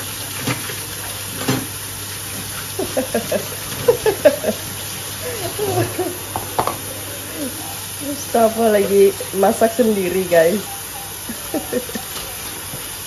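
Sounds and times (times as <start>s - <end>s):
plastic container rinsed: 0.0s - 13.0s
tap running into sink: 0.3s - 2.6s, 5.6s - 6.9s
knock: 6.4s - 6.8s.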